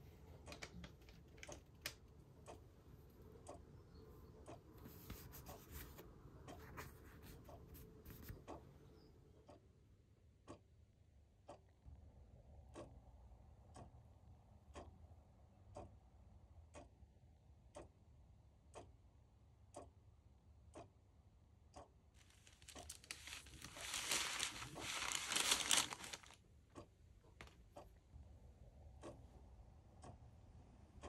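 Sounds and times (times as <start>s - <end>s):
clock ticking: 0.1s - 5.6s, 9.4s - 11.8s, 12.6s - 28.2s, 28.8s - 31.0s
paper bag rustling: 22.2s - 26.4s.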